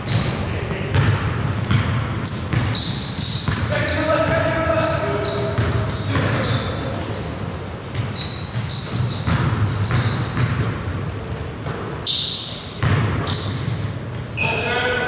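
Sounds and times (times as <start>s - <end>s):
basketball bouncing on wood floor: 0.0s - 4.6s, 5.4s - 7.0s, 7.8s - 12.0s, 12.8s - 14.2s
sneakers squeaking: 0.0s - 15.0s.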